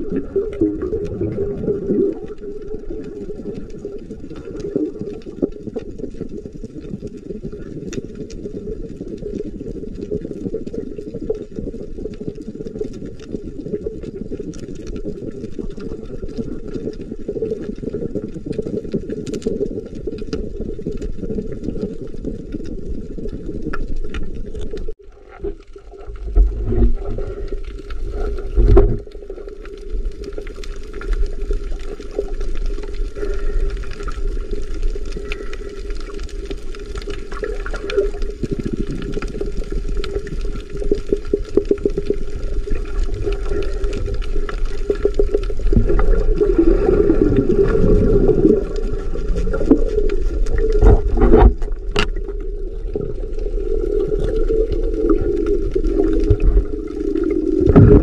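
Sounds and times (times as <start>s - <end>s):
underwater low rush: 0.0s - 58.0s
low rumbling thumps: 57.7s - 58.0s.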